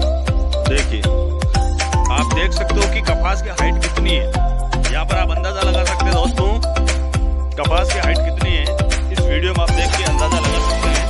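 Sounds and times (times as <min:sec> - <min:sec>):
background music with drum beat: 0:00.0 - 0:11.0.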